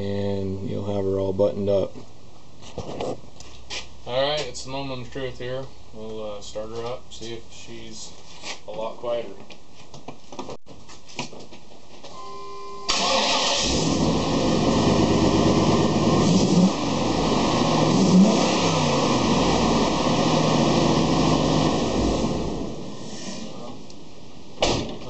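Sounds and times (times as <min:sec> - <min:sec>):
truck engine starting and revving: 0:12.9 - 0:23.6.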